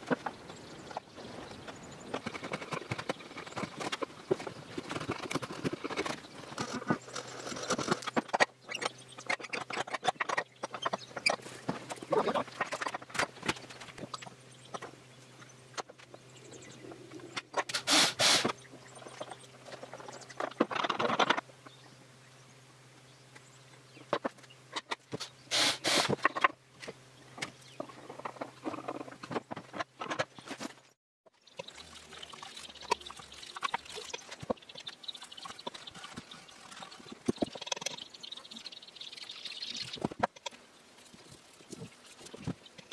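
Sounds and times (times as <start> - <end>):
loud rasping noise: 17.7 - 18.5, 25.1 - 26.3.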